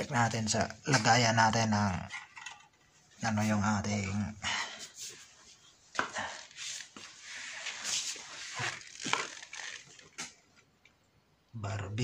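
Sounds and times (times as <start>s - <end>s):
rustling and scraping handling noise: 6.5s - 10.7s.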